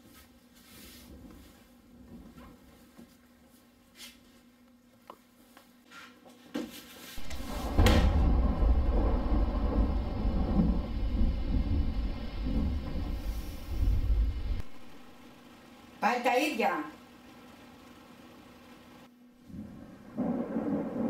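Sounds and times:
faint taps and rustles: 1.1 - 7.4
loud deep rumble: 7.2 - 15.4.

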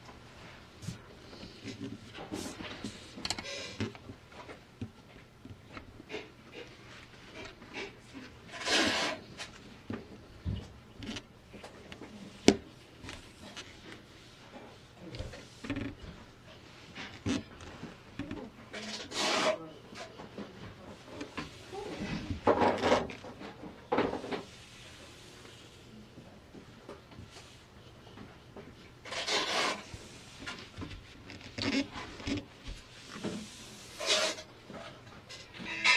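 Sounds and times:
rustling scrape: 0.4 - 3.9, 6.1 - 9.6, 18.7 - 20.2, 29.0 - 35.9.

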